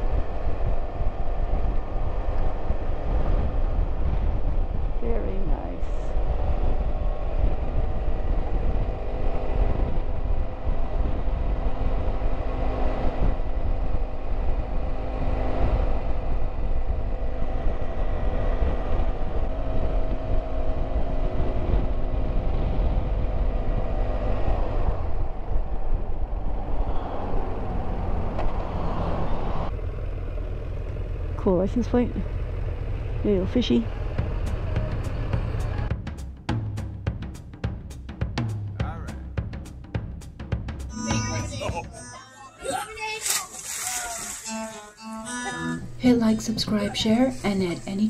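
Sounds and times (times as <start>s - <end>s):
wind noise: 0.0s - 29.7s
motorcycle engine drone: 0.0s - 42.0s
road rumble: 0.0s - 48.0s.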